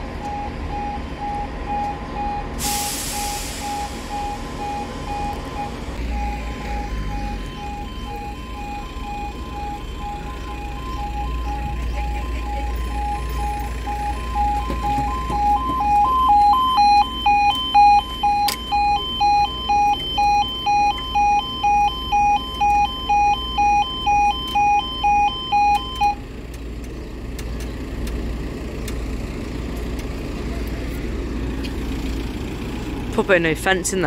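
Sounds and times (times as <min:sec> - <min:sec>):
level crossing alarm two tones: 0:00.2 - 0:26.2.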